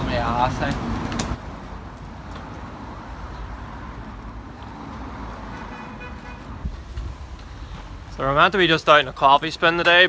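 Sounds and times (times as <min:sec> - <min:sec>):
faint road traffic: 0:00.0 - 0:10.0
wind rumbling on microphone: 0:06.5 - 0:08.2.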